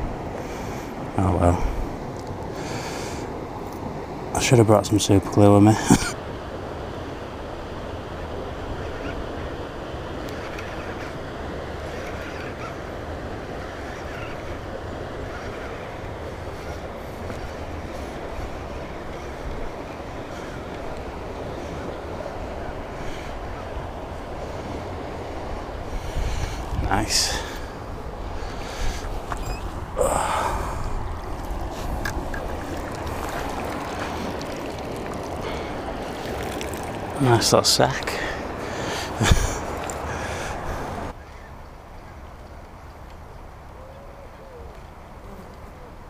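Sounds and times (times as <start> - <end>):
wind buffeting microphone: 6.0 - 41.2.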